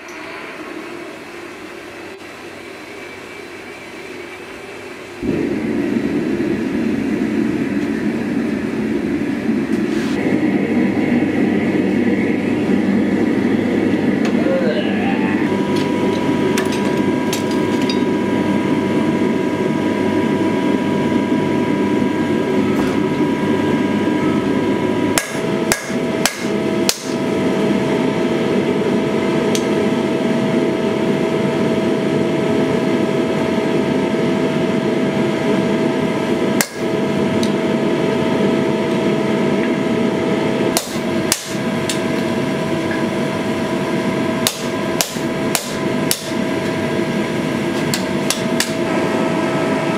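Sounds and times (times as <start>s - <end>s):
hammer striking hot steel on anvil: 16.6s - 18.1s, 25.2s - 27.2s, 36.6s - 36.9s, 40.7s - 42.0s, 44.4s - 46.4s, 47.8s - 48.8s.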